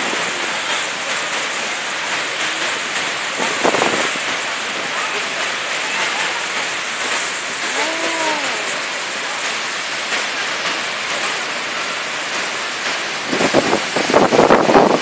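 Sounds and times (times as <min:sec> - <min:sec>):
waterfall rushing: 0:00.0 - 0:15.0
wind buffeting microphone: 0:13.2 - 0:15.0.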